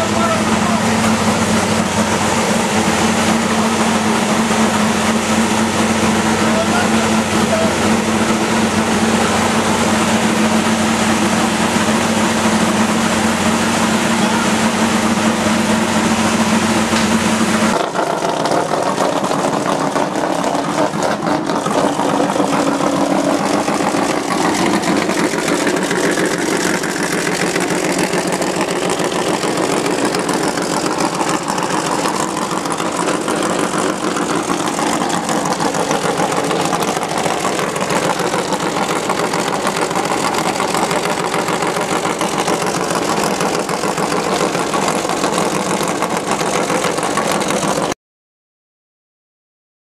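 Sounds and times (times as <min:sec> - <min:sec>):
race car engine idling: 0:00.0 - 0:48.0.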